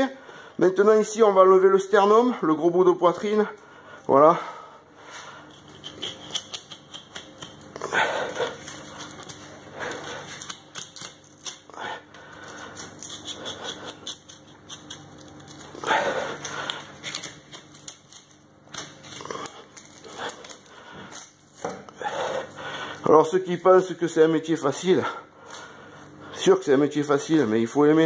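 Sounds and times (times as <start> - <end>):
knife clicking on bone and board: 5.5 - 7.8, 8.7 - 11.7, 12.8 - 15.6
knife cutting through bone: 5.5 - 11.7, 12.7 - 20.6.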